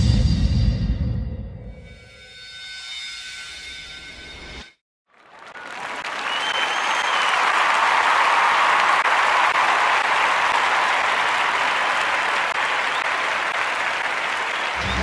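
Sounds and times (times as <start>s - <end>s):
audience applauding: 5.1s - 15.0s.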